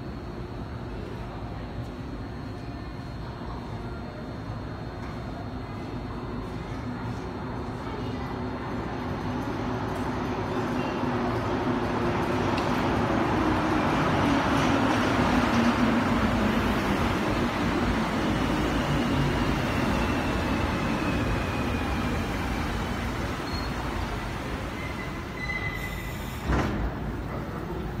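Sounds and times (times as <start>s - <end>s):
metro train braking: 10.6s - 28.0s
brief high squeal: 24.8s - 26.5s.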